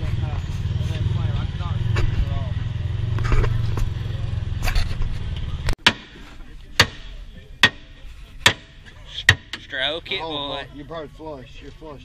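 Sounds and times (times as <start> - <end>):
engine idling with low rumble: 0.0 - 5.8
hammer striking metal: 5.8 - 9.7.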